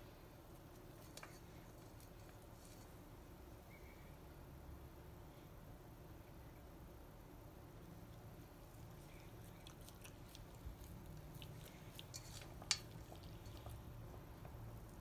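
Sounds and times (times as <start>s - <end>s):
dog chewing food: 9.0s - 15.0s.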